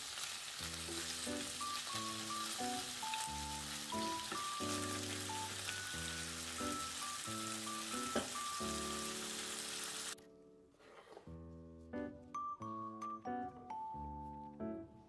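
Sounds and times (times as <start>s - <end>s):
beef sizzling in a pan: 0.0s - 10.2s
background music: 0.6s - 15.0s.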